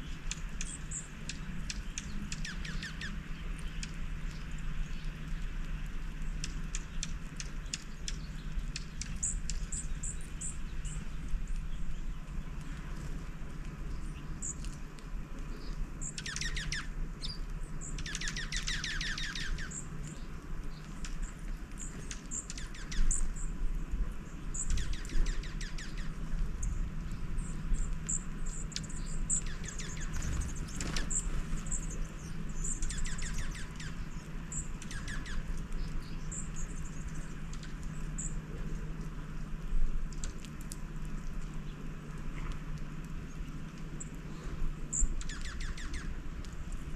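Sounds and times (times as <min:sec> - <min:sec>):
songbirds chirping: 0:00.0 - 0:46.9
steady low hum: 0:00.0 - 0:46.9
bird trills: 0:00.2 - 0:04.4, 0:15.5 - 0:23.5, 0:24.5 - 0:26.8, 0:27.4 - 0:38.4, 0:44.0 - 0:46.2.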